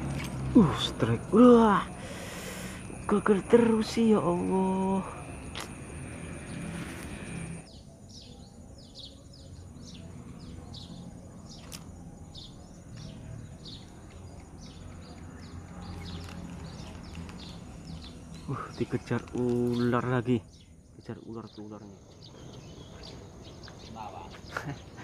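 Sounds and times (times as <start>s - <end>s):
bird chirping: 0.0s - 25.0s.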